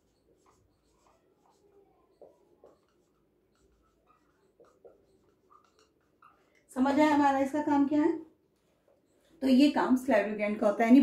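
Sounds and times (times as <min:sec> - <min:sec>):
marker squeaking on whiteboard: 0:00.0 - 0:07.2, 0:08.4 - 0:09.4.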